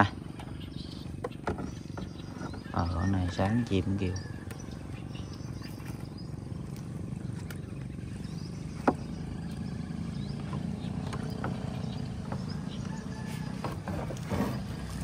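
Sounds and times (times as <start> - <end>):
birds chirping faintly: 0.0 - 15.0.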